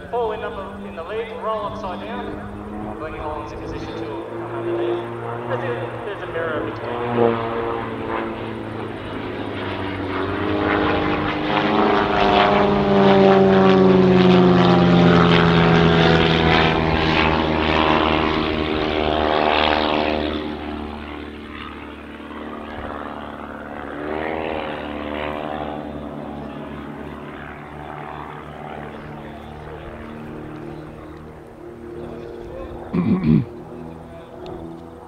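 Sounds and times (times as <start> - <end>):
propeller planes droning past: 0.0 - 35.0.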